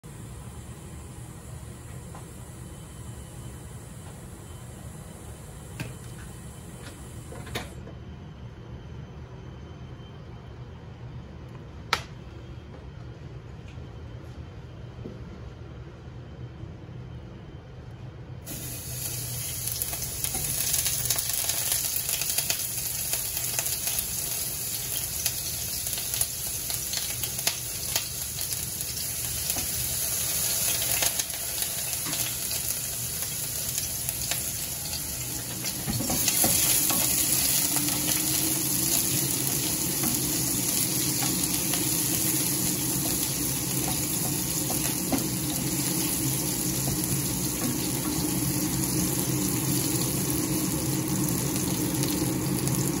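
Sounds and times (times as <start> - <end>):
shallots sizzling in oil: 18.5 - 53.0.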